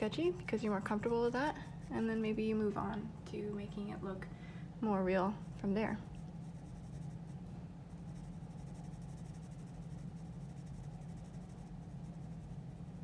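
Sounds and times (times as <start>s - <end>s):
steady low hum: 0.0s - 13.0s
pencil shading on paper: 6.1s - 13.0s.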